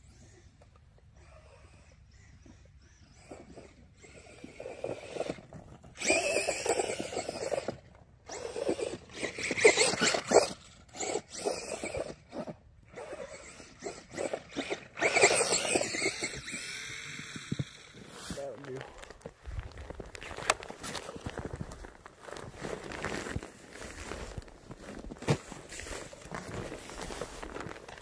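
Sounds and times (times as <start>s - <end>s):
electric motor whine revving: 1.2s - 18.4s.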